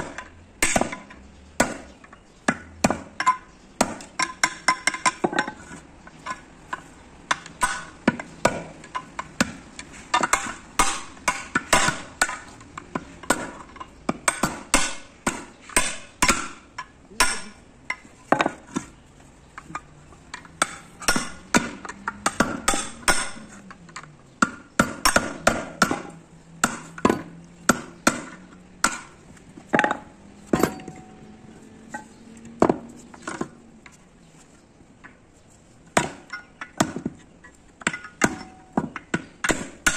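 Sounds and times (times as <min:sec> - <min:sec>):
hammer striking steel punch: 0:10.2 - 0:12.4, 0:14.2 - 0:16.6, 0:17.2 - 0:17.6, 0:20.6 - 0:23.5, 0:24.4 - 0:29.1, 0:37.9 - 0:39.9.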